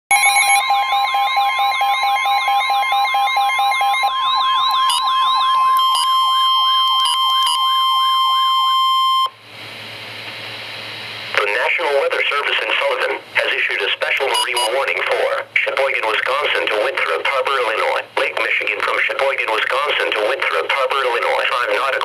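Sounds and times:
warbling electronic siren: 0:00.1 - 0:09.4
radio hiss: 0:11.3 - 0:22.0
fast beeping: 0:14.2 - 0:14.9
steady alert tone: 0:14.3 - 0:14.8.

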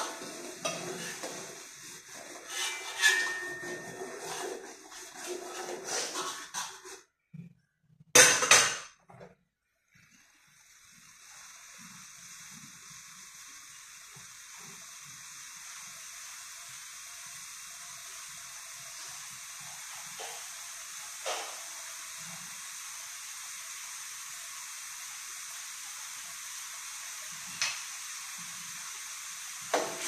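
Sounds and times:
liquid hissing in a wok: 0:00.0 - 0:07.1, 0:09.8 - 0:30.0
metal ladle scraping a wok: 0:00.0 - 0:07.1.

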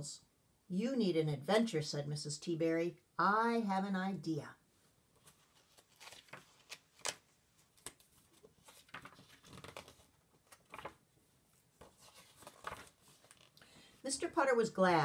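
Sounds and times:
paper page turning: 0:05.2 - 0:13.6.

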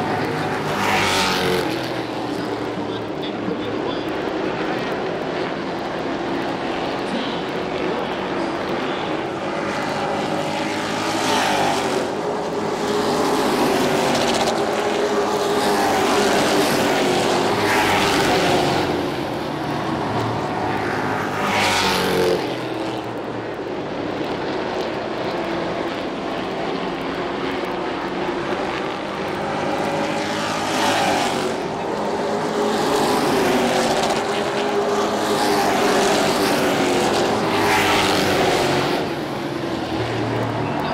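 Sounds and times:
race truck engines passing: 0:00.0 - 0:40.9.

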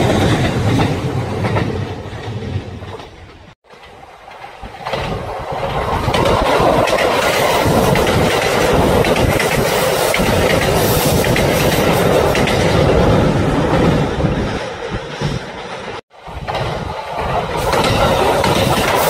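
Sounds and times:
train passing: 0:00.0 - 0:19.0
wheels clattering over rail joints: 0:00.0 - 0:19.0.

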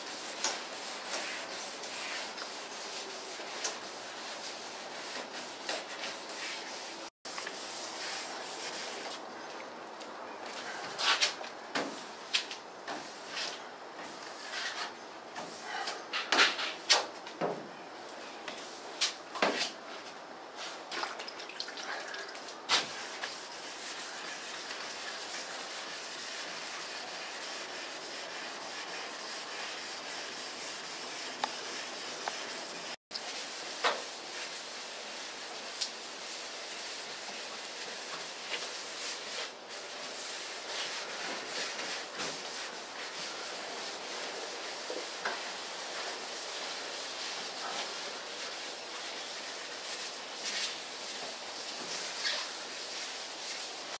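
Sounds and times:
wet sanding by hand: 0:00.0 - 0:09.1, 0:22.7 - 0:54.0.

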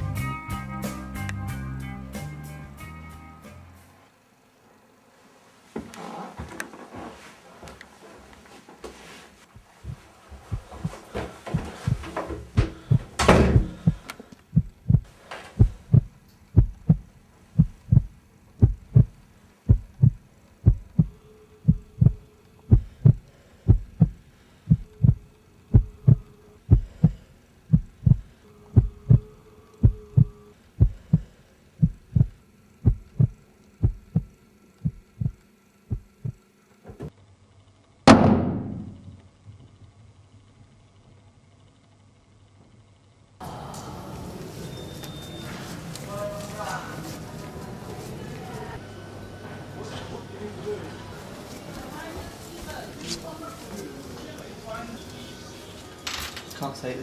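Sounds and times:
heartbeat thuds: 0:09.5 - 0:36.4.

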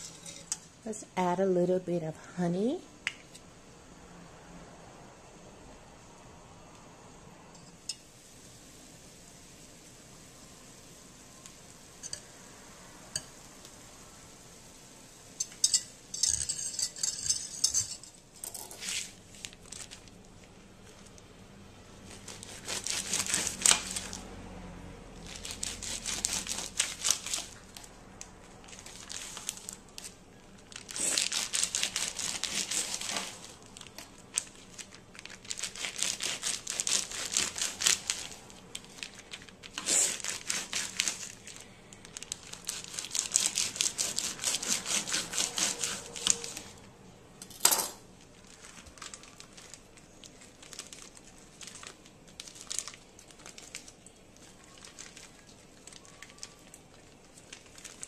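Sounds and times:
plastic packaging crinkling and tearing: 0:18.8 - 0:21.2, 0:22.1 - 0:24.2, 0:25.2 - 0:46.8, 0:48.1 - 0:58.0.

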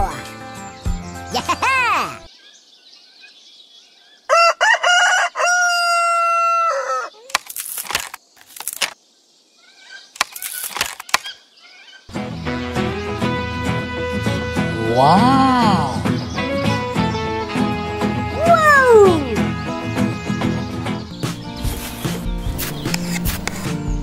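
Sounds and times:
rooster crowing: 0:04.3 - 0:07.2
rustling: 0:07.3 - 0:09.0, 0:10.2 - 0:11.3, 0:21.4 - 0:23.8.

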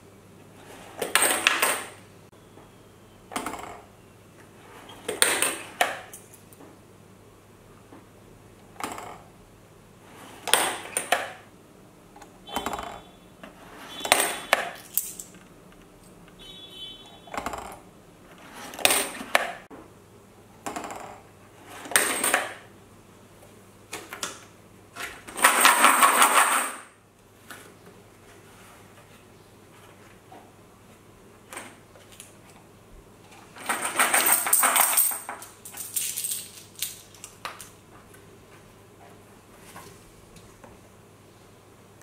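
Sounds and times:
coins clinking into coin bank: 0:14.0 - 0:15.4, 0:25.4 - 0:27.0, 0:33.6 - 0:37.4
coins rattling: 0:14.8 - 0:15.4, 0:33.6 - 0:37.7.

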